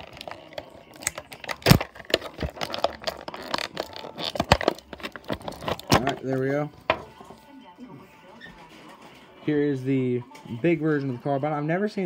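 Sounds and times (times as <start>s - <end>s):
plastic packaging crinkling: 0.0s - 6.6s.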